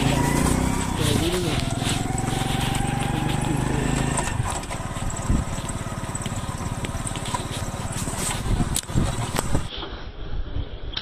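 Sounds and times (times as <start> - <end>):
motor engine running: 0.0 - 9.7.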